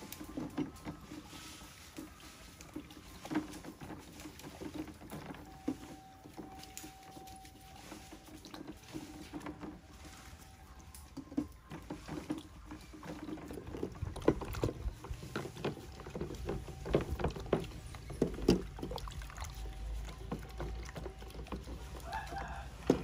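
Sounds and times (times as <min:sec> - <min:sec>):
water sloshing in basin: 0:00.0 - 0:23.0.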